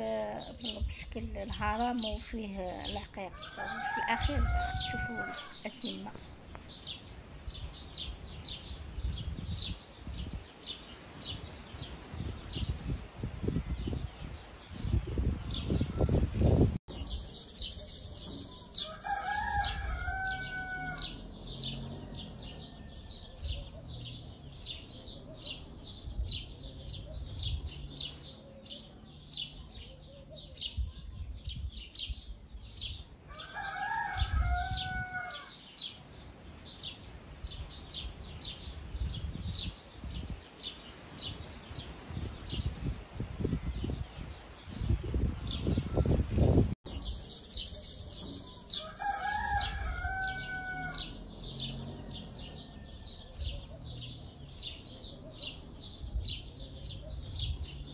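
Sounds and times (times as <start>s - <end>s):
small birds chirping: 0.0s - 57.9s
rooster crowing: 3.3s - 5.7s, 18.8s - 23.4s, 33.3s - 35.6s, 48.7s - 53.4s.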